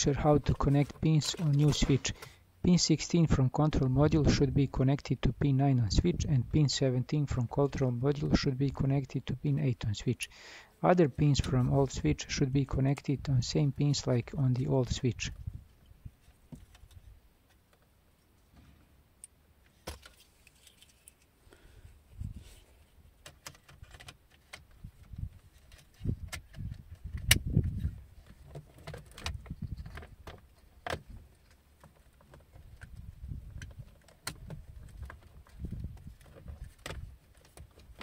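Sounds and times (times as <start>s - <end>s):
plastic parts clicking and rattling: 19.7s - 21.3s, 23.2s - 27.4s, 28.2s - 38.0s.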